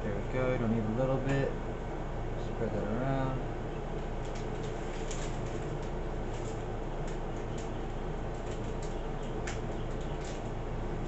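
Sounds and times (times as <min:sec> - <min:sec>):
steady low hum: 0:00.0 - 0:11.0
small clicks and rubbing: 0:04.2 - 0:10.6.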